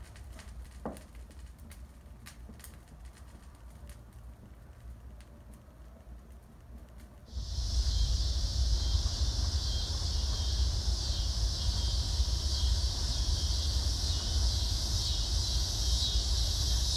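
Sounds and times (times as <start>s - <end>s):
high-pitched insect chorus: 7.3s - 16.9s
low rumble: 7.3s - 16.9s.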